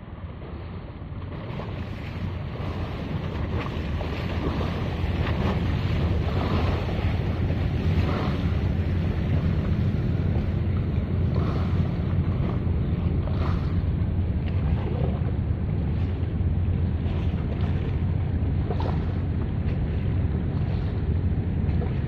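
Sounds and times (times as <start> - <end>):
wind on microphone: 0.0 - 22.0.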